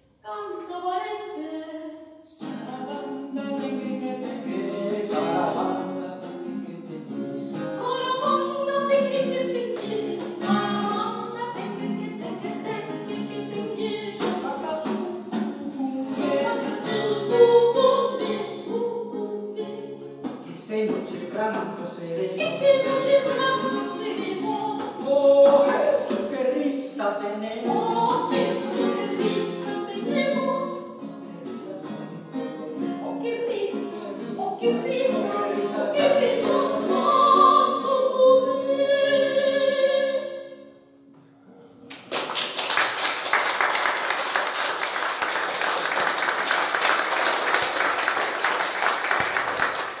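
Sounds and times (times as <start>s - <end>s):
soprano singing: 0.2s - 40.9s
strummed guitar: 2.4s - 38.5s
audience applause: 41.9s - 50.0s.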